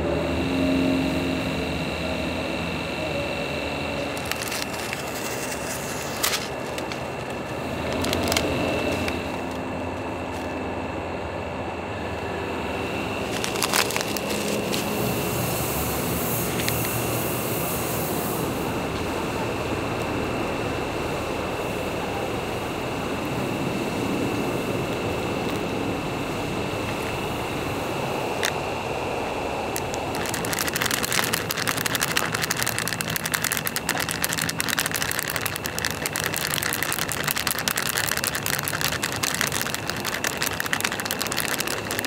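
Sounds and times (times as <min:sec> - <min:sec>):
steady background drone: 0:00.0 - 0:42.0
plastic pouch crinkling: 0:04.0 - 0:09.6, 0:13.2 - 0:15.2, 0:29.7 - 0:42.0.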